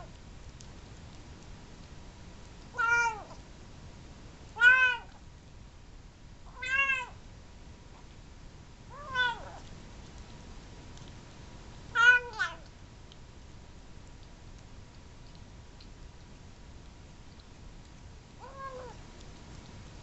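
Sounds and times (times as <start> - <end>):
kitten meowing: 2.8 - 3.4, 4.6 - 5.2, 6.5 - 7.2, 8.9 - 9.6, 12.0 - 12.7, 18.4 - 19.0.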